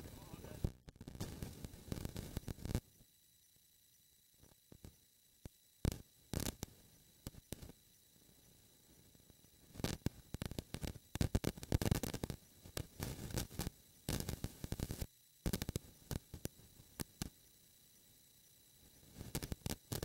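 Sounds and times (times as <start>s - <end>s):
crackling and clicking on microphone: 0.0s - 2.9s, 4.4s - 7.8s, 9.7s - 17.4s, 19.1s - 20.0s
faint hiss: 0.0s - 20.0s.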